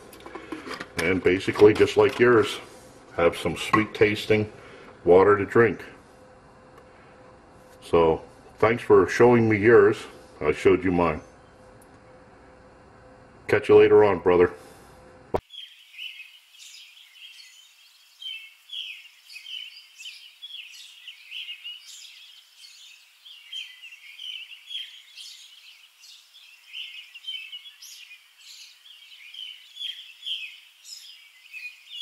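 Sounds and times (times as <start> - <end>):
small birds chirping: 15.4 - 32.0.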